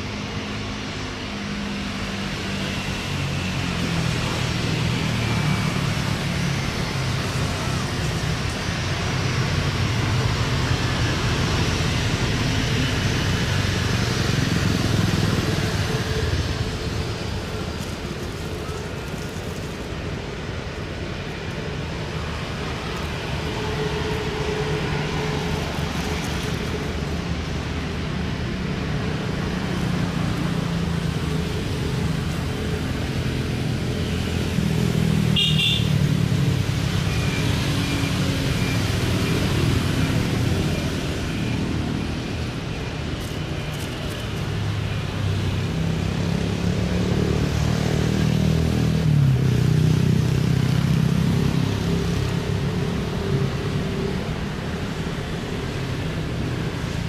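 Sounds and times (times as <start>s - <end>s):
engines humming: 0.0s - 57.0s.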